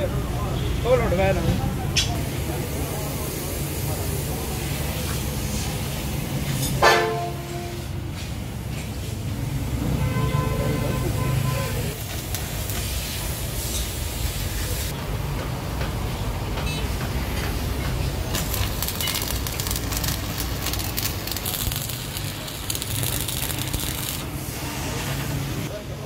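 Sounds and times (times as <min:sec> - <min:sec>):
welding arc crackling: 0:11.2 - 0:15.0, 0:17.2 - 0:25.7.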